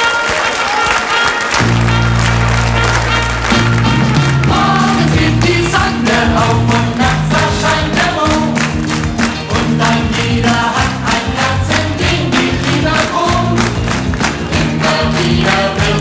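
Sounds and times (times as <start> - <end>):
steady beat: 1.6 - 16.0
group singing pop song: 4.4 - 16.0.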